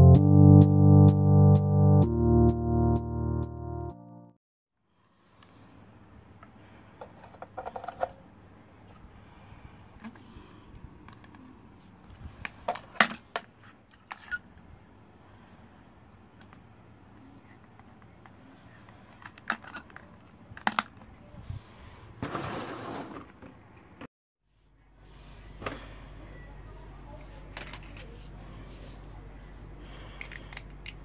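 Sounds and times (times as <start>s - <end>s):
rustling scrape: 21.5s - 23.4s.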